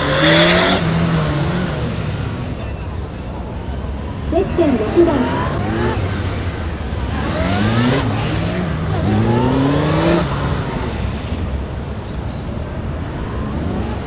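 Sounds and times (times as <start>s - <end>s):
motorcycle engine revving: 3.8s - 14.0s.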